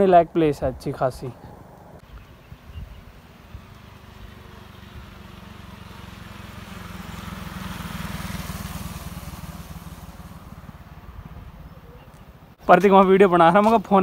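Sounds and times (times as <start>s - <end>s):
motorcycle riding past: 3.0s - 12.6s.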